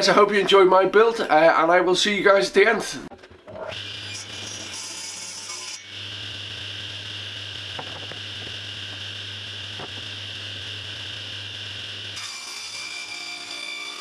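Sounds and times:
plywood sheet knocks: 7.8s - 8.6s, 9.8s - 10.0s.

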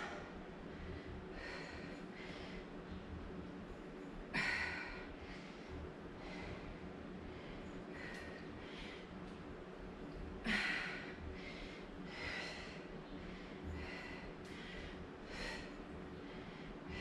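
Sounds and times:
woman breathing hard: 0.0s - 2.8s, 4.3s - 9.3s, 10.4s - 17.0s.

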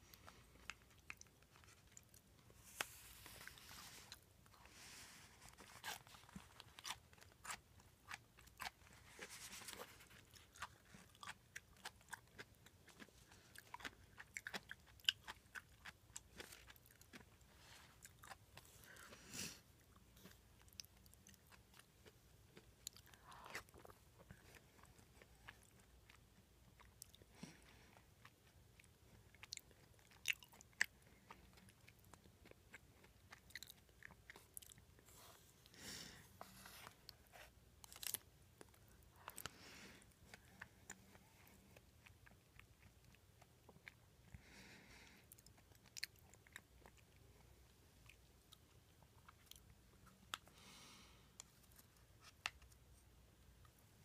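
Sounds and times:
chewing with wet mouth clicks: 10.2s - 17.4s.

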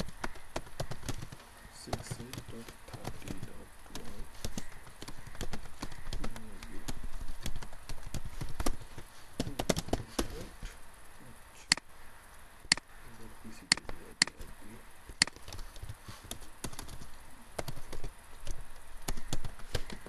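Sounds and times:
keyboard typing: 0.0s - 10.4s, 15.1s - 20.0s.

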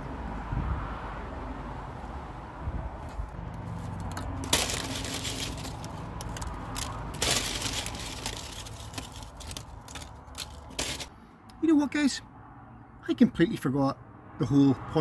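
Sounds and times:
plastic bag crinkling: 3.6s - 11.1s.

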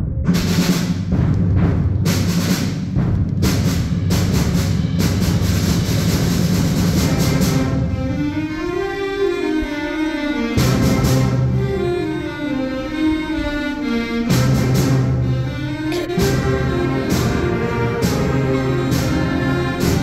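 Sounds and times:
drum and cymbal hits: 0.2s - 8.1s, 14.3s - 20.0s
concert band playing: 10.3s - 20.0s.

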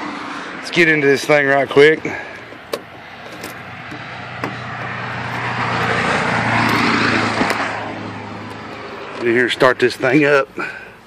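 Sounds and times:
low engine hum: 0.0s - 11.0s
vehicle driving past: 2.0s - 9.9s.

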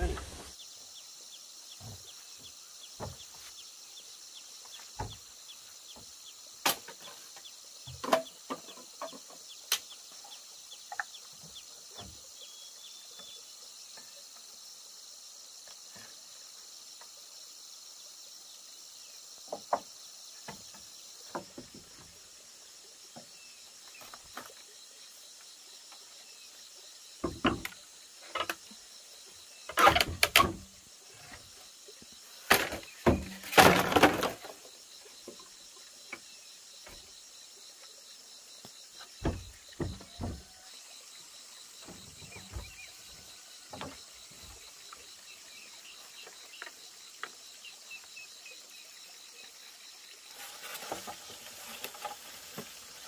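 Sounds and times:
high insect chirring: 0.0s - 53.0s
sharp knocks and taps: 39.2s - 40.5s.

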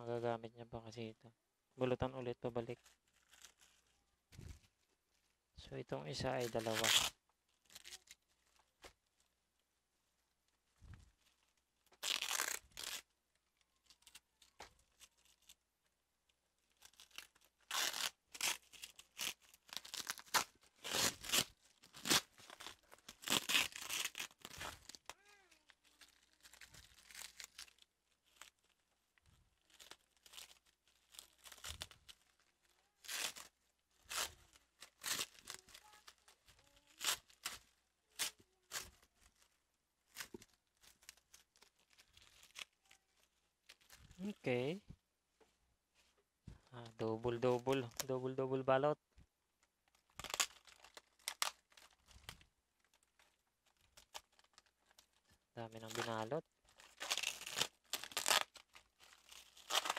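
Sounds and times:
plastic wrap tearing and crinkling: 2.6s - 4.1s, 6.1s - 9.2s, 11.1s - 15.6s, 16.6s - 44.5s, 49.9s - 59.9s.

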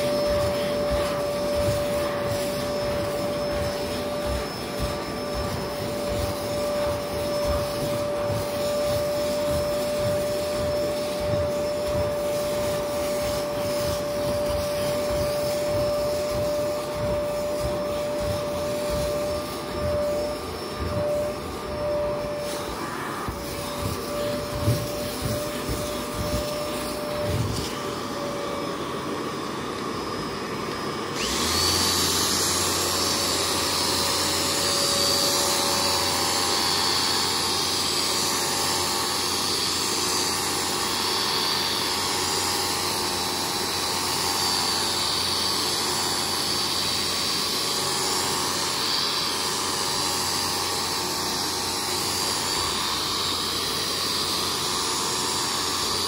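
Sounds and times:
quieter motor running: 0.0s - 28.4s
vacuum motor hum and whine: 0.0s - 56.0s.

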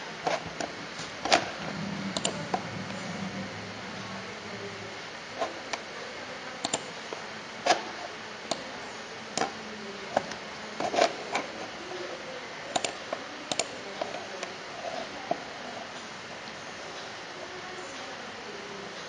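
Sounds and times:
steady low hiss: 0.0s - 10.8s
mouse and keyboard clicking: 6.6s - 6.9s.

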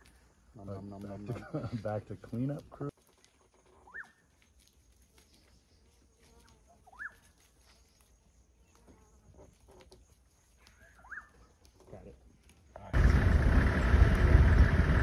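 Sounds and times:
faint whistled bird call: 3.8s - 4.2s, 6.9s - 8.0s, 10.6s - 11.5s.

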